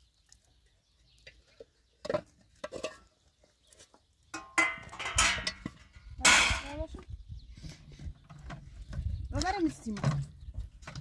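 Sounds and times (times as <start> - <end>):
metal tray and glasses clinking: 4.4 - 6.7.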